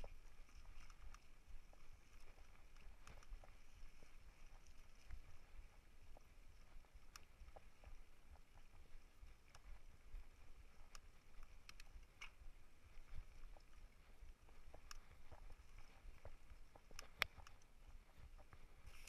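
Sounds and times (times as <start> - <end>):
bicycle on dirt trail: 0.0 - 19.0
light clicks and rattles: 0.0 - 19.0.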